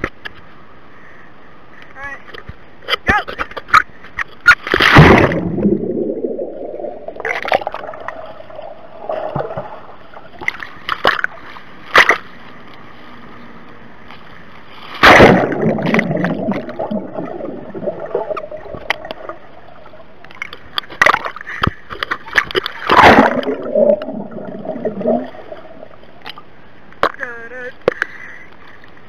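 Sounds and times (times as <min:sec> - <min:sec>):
water splashing and bubbling: 0:04.4 - 0:12.6, 0:14.7 - 0:26.6
loud splash: 0:04.7 - 0:08.2, 0:15.0 - 0:19.0, 0:22.8 - 0:25.8
muffled underwater gurgling: 0:22.9 - 0:26.0.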